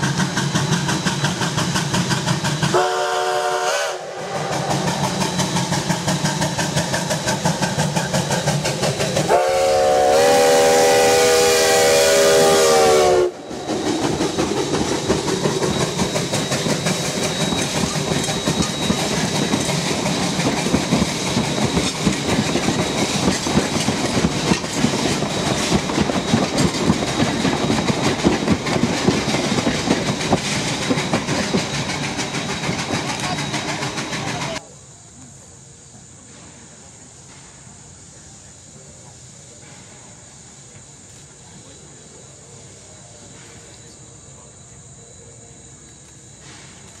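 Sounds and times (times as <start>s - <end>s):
train wheels clattering: 0.0s - 3.6s, 4.2s - 11.2s, 12.3s - 34.6s
steam locomotive whistle: 2.3s - 6.2s, 9.1s - 19.4s.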